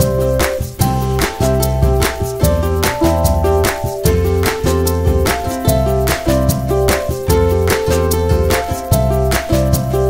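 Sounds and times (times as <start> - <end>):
upbeat guitar music with beat: 0.0 - 10.0.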